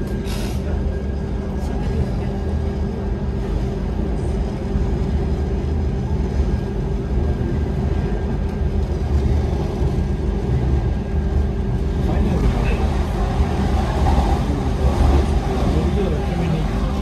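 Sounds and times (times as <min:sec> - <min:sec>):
train rumbling: 0:00.0 - 0:17.0.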